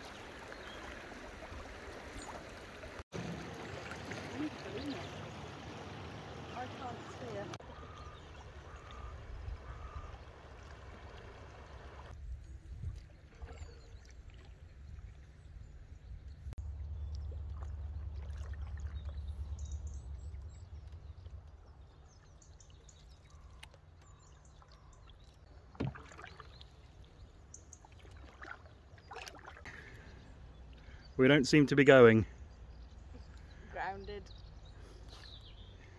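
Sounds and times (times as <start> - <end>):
water rushing over riffles: 0.0 - 7.6
canoe paddles in water: 0.0 - 15.8, 16.6 - 31.0
low rumble: 15.9 - 22.5.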